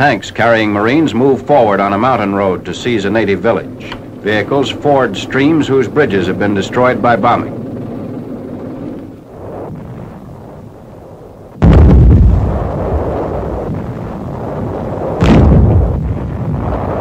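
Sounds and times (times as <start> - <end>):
artillery shell explosions: 9.4 - 17.0.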